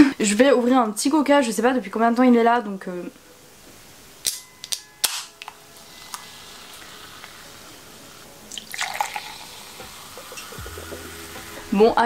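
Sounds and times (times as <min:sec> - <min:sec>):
cola pouring into glass: 0:08.5 - 0:11.1
cola fizzing: 0:08.5 - 0:11.8.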